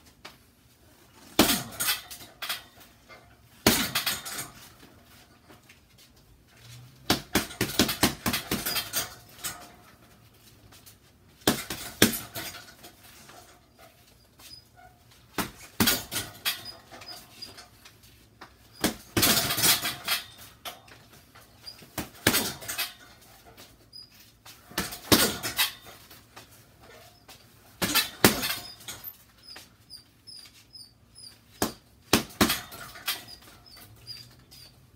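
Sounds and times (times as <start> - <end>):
gloves punching bag: 7.0 - 9.0, 11.4 - 12.6, 15.3 - 16.4, 18.7 - 19.9, 21.6 - 22.7, 24.6 - 25.6, 31.5 - 34.7.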